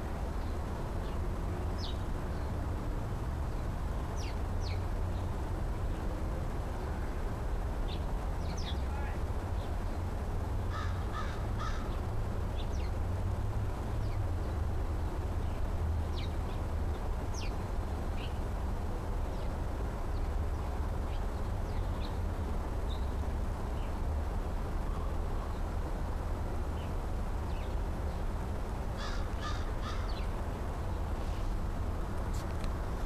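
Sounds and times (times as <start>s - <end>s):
crow cawing: 10.7s - 11.9s, 29.0s - 30.2s.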